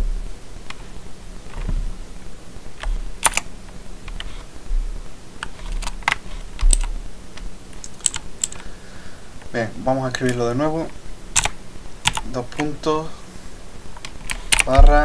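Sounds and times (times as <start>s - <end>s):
keyboard keys clicking: 2.8s - 3.5s, 5.4s - 6.9s, 7.8s - 8.6s, 11.4s - 12.7s, 14.0s - 15.0s.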